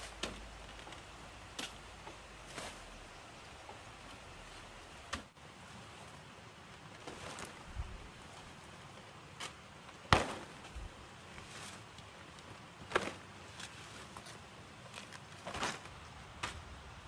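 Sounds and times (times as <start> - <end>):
machete chopping plant stalks: 0.0 - 0.5, 5.1 - 5.3, 9.4 - 10.7, 15.4 - 16.6.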